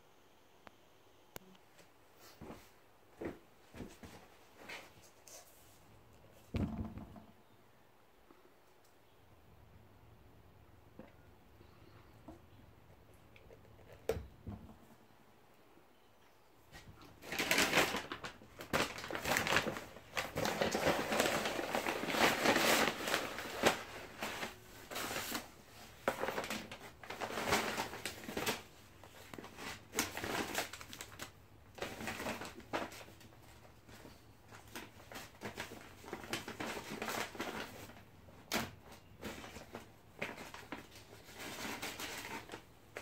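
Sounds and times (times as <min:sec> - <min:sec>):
items knocking on tabletop: 0:06.5 - 0:07.3
paper packaging rustling: 0:16.8 - 0:43.0.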